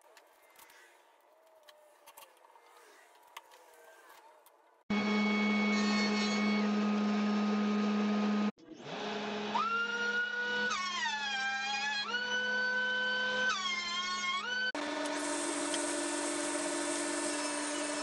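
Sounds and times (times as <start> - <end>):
thickness planer whining: 4.9 - 18.0.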